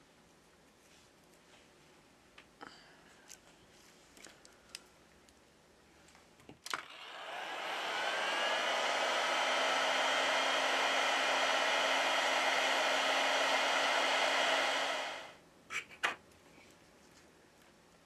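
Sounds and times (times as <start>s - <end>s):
heat gun blowing air: 6.8s - 15.4s.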